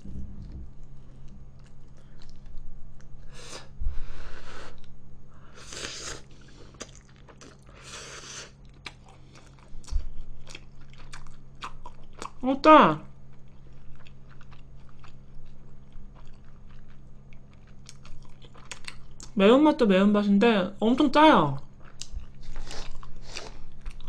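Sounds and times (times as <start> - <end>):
dull low bumps: 0.0 - 1.4
person chewing: 0.4 - 3.7, 5.6 - 12.4, 13.2 - 19.3, 21.8 - 24.0
person slurping noodles: 5.6 - 6.6, 7.8 - 8.6.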